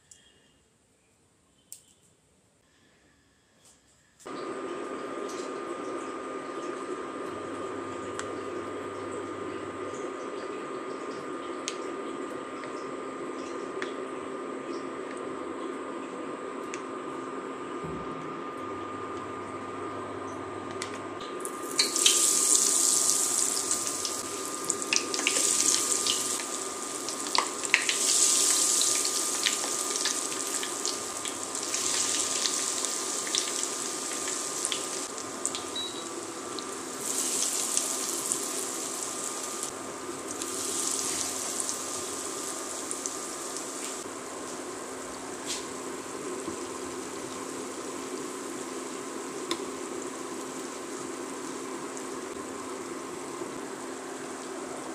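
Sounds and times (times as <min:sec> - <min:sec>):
food deep-frying in oil: 0:21.3 - 0:54.9.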